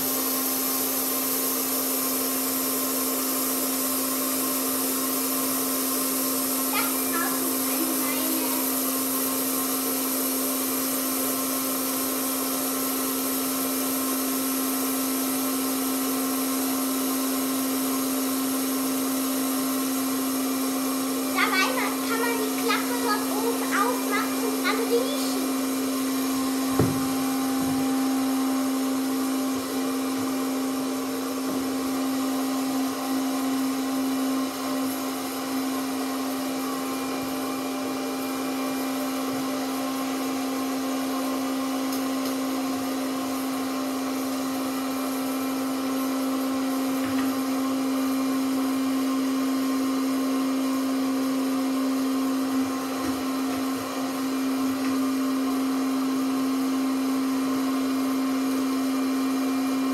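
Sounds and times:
popcorn machine fan whirring: 0.0s - 59.9s.

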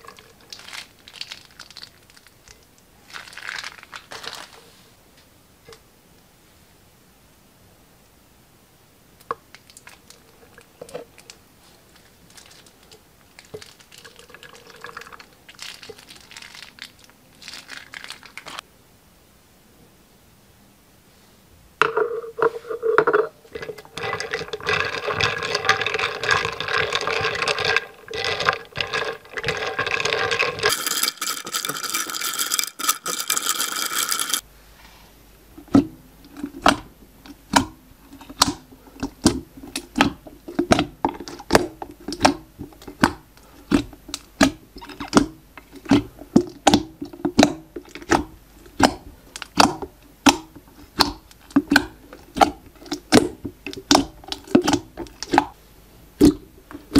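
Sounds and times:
slime squeezing: 0.0s - 4.6s, 9.6s - 18.6s, 37.5s - 55.5s
wet stirring of slime: 0.0s - 4.7s, 9.2s - 18.6s, 22.4s - 32.1s, 35.6s - 55.6s
fingers clicking in slime: 48.8s - 55.4s.

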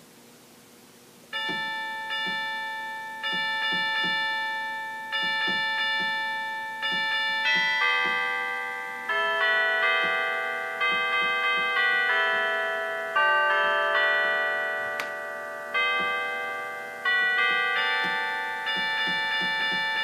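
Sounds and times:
bell-like chime tones: 1.4s - 20.0s.

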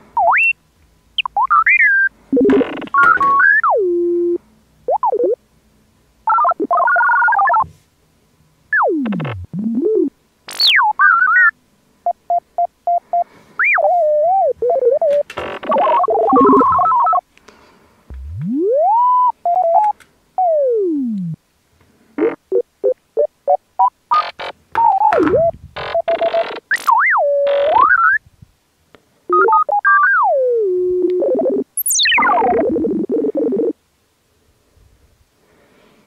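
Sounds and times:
synthesized electronic beeps: 1.2s - 5.4s, 6.3s - 7.6s, 8.7s - 11.5s, 13.6s - 17.2s, 18.1s - 21.2s, 29.3s - 33.8s
warbling chirps: 13.6s - 17.2s, 18.1s - 20.8s, 31.4s - 33.7s.

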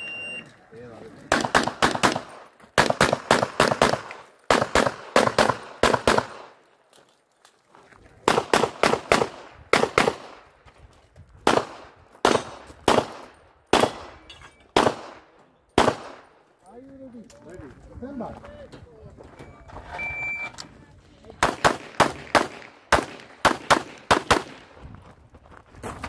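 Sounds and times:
pistol shots: 1.3s - 6.6s, 8.2s - 10.4s, 11.4s - 16.4s, 21.4s - 24.7s.

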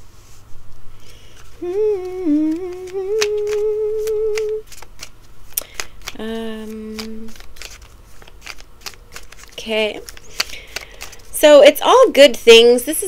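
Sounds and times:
cards being shuffled: 1.0s - 11.4s
woman humming: 1.6s - 4.6s, 6.2s - 7.4s.

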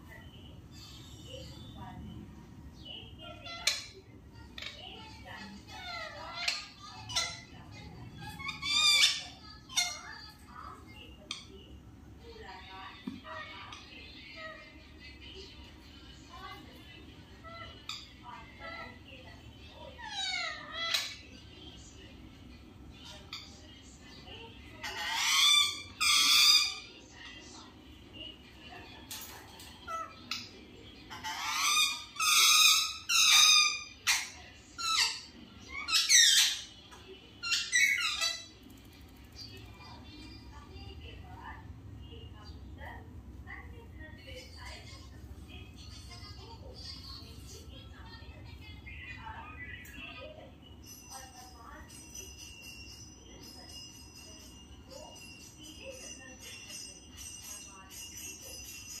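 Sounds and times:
parakeets calling harshly: 0.0s - 27.7s, 28.7s - 42.9s, 43.8s - 59.0s
high ringing tone: 50.7s - 59.0s
small bells shaken in rhythm: 50.8s - 59.0s.

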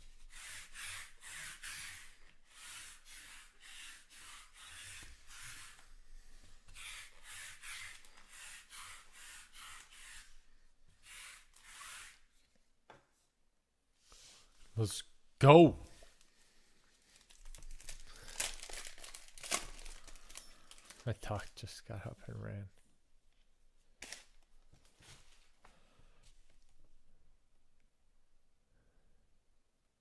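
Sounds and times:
lint roller rubbing on mat: 0.0s - 12.3s.

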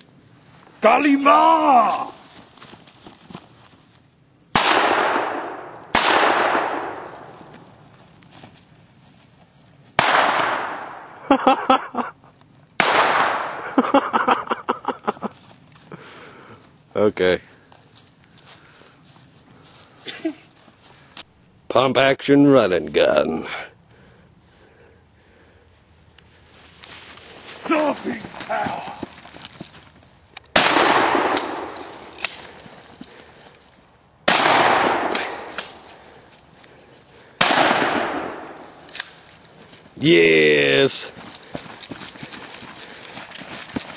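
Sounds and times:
shotgun shots echoing: 4.5s - 7.4s, 10.0s - 11.1s, 12.8s - 13.7s, 30.5s - 32.4s, 34.2s - 35.8s, 37.4s - 39.0s.

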